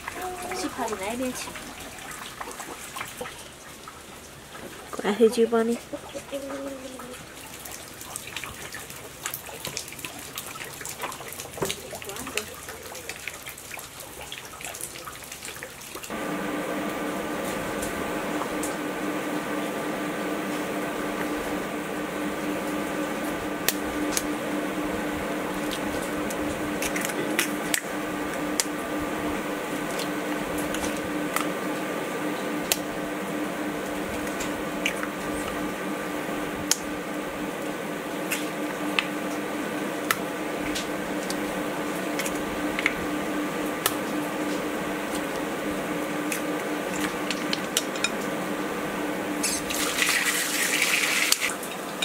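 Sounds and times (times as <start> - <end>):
low machine hum: 0.0 - 3.4, 16.0 - 52.0.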